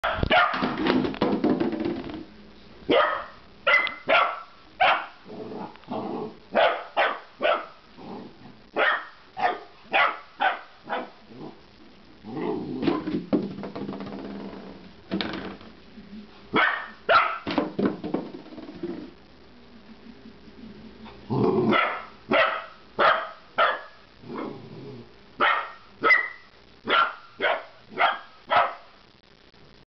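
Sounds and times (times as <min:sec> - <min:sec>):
puppy barking: 0:00.0 - 0:00.7, 0:02.9 - 0:05.2, 0:06.5 - 0:07.8, 0:08.8 - 0:11.2, 0:16.6 - 0:17.5, 0:21.7 - 0:24.0, 0:25.4 - 0:28.9.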